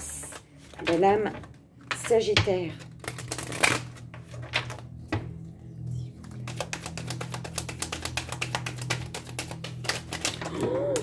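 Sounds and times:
low hum: 2.7s - 8.0s
cards shuffling clicks: 2.8s - 5.4s, 6.2s - 11.0s
cards tapping: 6.2s - 11.0s.

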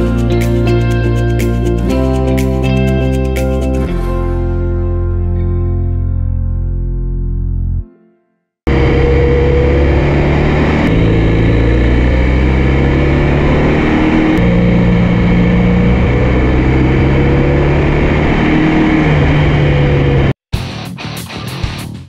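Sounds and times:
motorcycle engine running: 8.7s - 20.4s.

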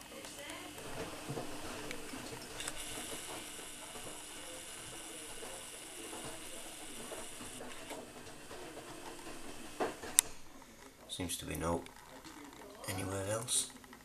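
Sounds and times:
camera zoom motor whirring: 0.7s - 8.1s.

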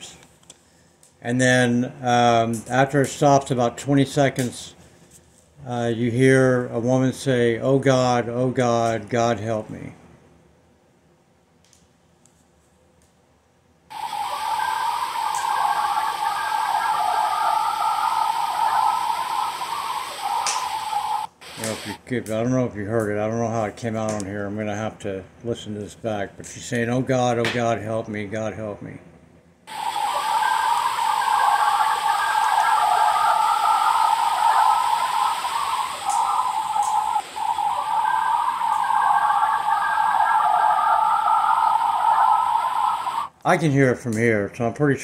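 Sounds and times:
steady rushing hiss: 13.9s - 22.0s, 29.7s - 43.3s.

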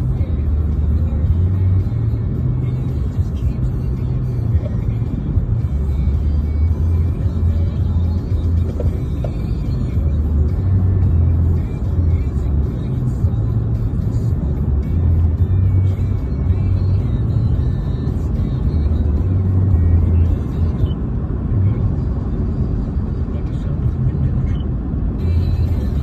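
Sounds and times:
car road and engine rumble: 0.0s - 26.0s.

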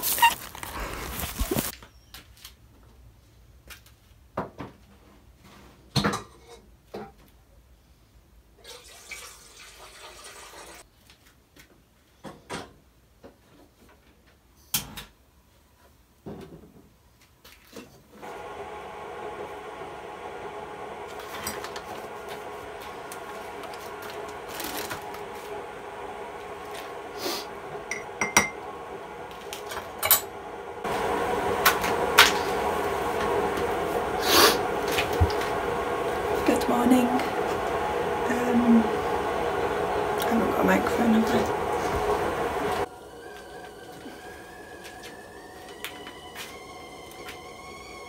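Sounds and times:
kettle humming on gas burner: 18.2s - 48.0s.

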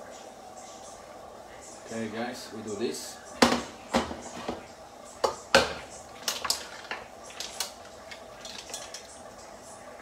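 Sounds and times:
pan knocking on pot: 3.4s - 4.6s, 5.2s - 5.8s
metal tongs clinking on pan: 6.2s - 9.2s.

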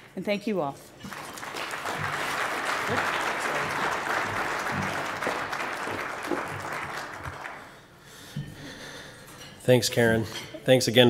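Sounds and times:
audience applause: 1.1s - 7.8s.

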